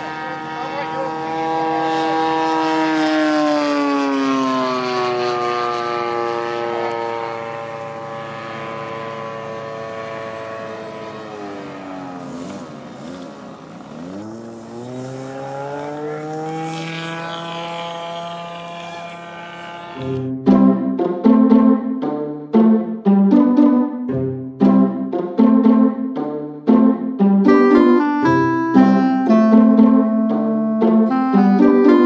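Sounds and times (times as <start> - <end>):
model airplane engine running: 0.0 - 20.3.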